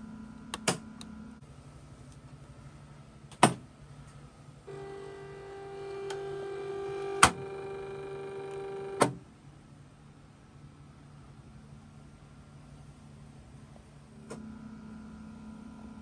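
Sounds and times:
small electric motor humming: 4.7s - 9.0s.

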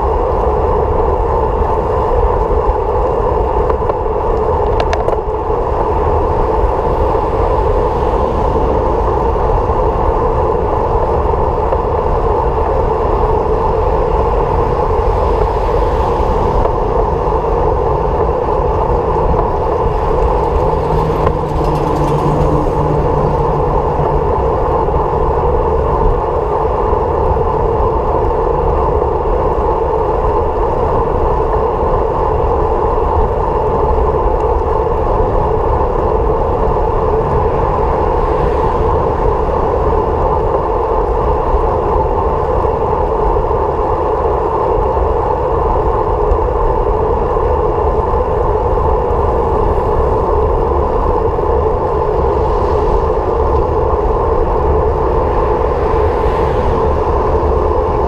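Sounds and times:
low hum: 0.0s - 41.2s
vehicle road and wind noise: 0.0s - 58.0s.

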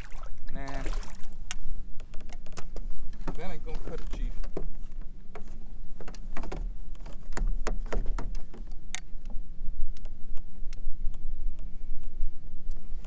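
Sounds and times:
steady low rumble: 0.0s - 7.8s, 8.4s - 13.0s
fishing gear knocking in kayak: 5.3s - 8.7s.

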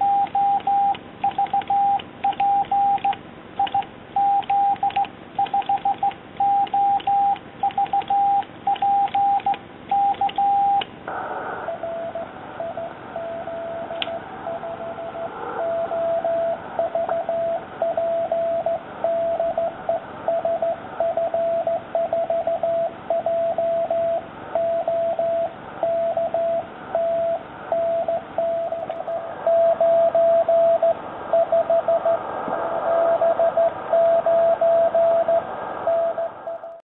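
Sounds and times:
morse code sidetone beeps: 0.0s - 10.8s, 14.5s - 32.2s, 32.9s - 36.8s
received morse code beeps: 0.0s - 10.8s, 11.8s - 32.2s, 32.9s - 36.8s
shortwave radio hiss: 11.1s - 11.8s, 32.0s - 33.9s, 35.4s - 36.4s.

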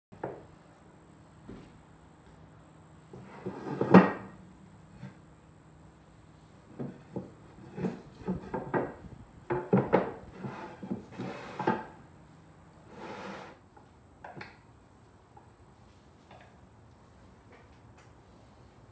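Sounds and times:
boards sliding on wood: 3.1s - 4.4s, 6.7s - 8.9s, 9.6s - 12.0s, 12.8s - 13.6s
wooden boards knocking on table: 6.8s - 10.2s.

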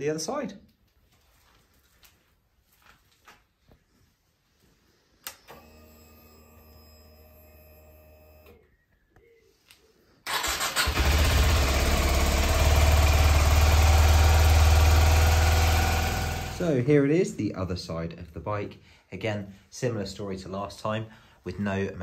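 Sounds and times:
click: 5.2s - 5.6s
motorcycle engine starting and idling: 10.3s - 16.8s
fuel pump whine: 10.8s - 16.6s.

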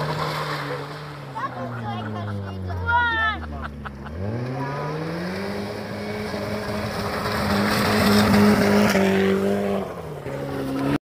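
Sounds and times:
car engine revving: 0.0s - 11.0s
tyres scrabbling on gravel: 6.3s - 9.2s.

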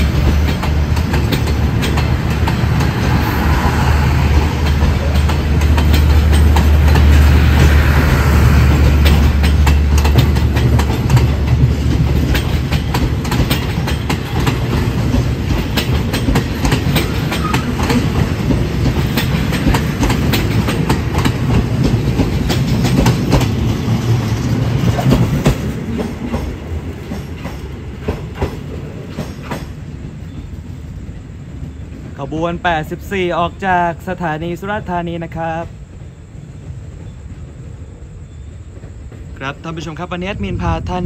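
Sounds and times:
wheels clickety-clack: 0.0s - 30.8s
train carriages rumbling: 0.0s - 41.0s.

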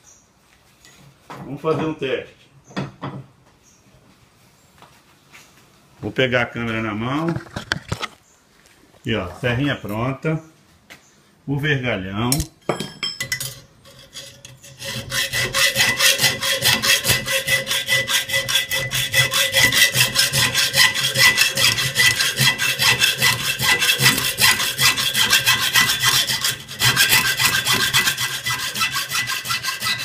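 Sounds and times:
hacksaw sawing steel: 13.4s - 30.0s.

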